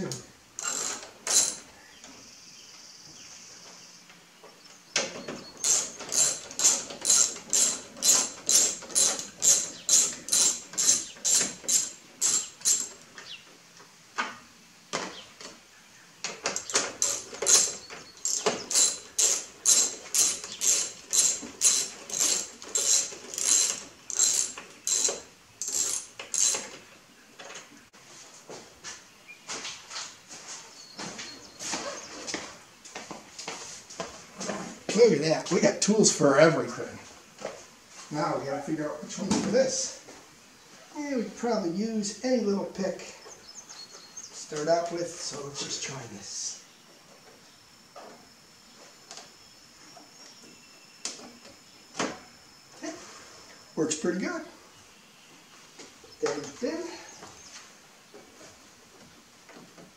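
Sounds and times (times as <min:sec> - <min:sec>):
ratchet wrench clicking: 0:00.6 - 0:01.6, 0:05.6 - 0:13.0, 0:16.5 - 0:26.7.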